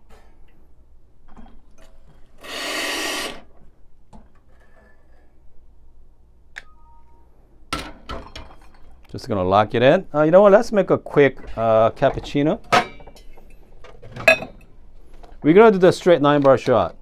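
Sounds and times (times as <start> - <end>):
espresso machine water hiss: 2.4 - 3.5.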